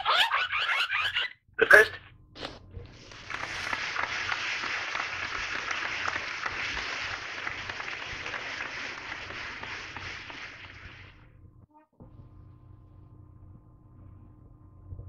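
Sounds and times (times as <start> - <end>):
crowd applause: 3.0 - 11.3.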